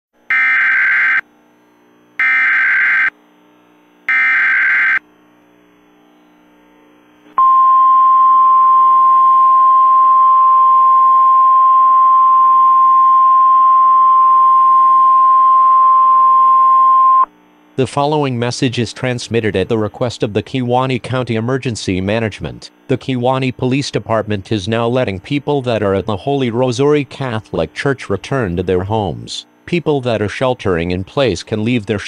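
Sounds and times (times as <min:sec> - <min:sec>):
digital data bursts: 0:00.3 - 0:01.2, 0:02.2 - 0:03.1, 0:04.1 - 0:05.0
single-tone warning alarm: 0:00.3 - 0:01.3, 0:02.2 - 0:03.2, 0:04.1 - 0:05.0, 0:07.4 - 0:17.3.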